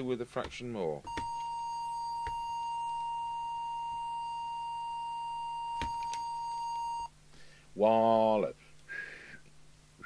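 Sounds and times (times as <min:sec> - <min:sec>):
steady pure test tone: 0:01.0 - 0:07.1.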